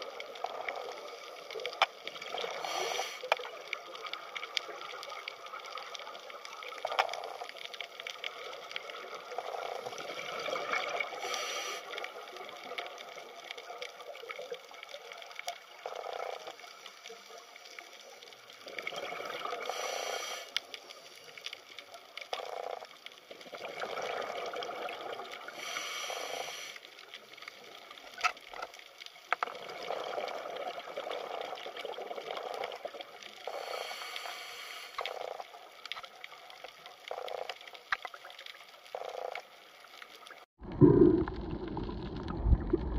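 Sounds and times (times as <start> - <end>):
underwater water hiss: 0.9 - 3.4, 9.7 - 12.2, 19.1 - 21.4, 25.2 - 27.2, 33.4 - 35.5.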